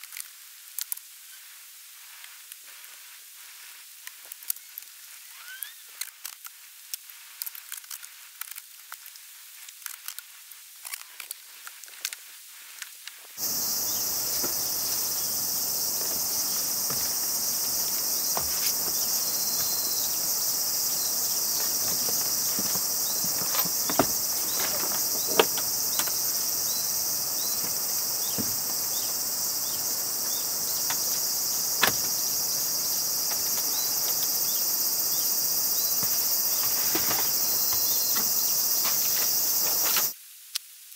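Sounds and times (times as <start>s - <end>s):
footsteps on wooden ladder: 13.4s - 34.3s, 35.9s - 40.1s
high-pitched insect chorus: 13.4s - 40.2s.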